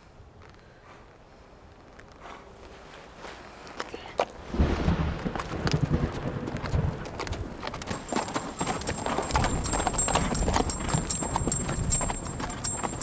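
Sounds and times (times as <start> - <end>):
horse hooves clip-clopping: 5.2 - 13.0.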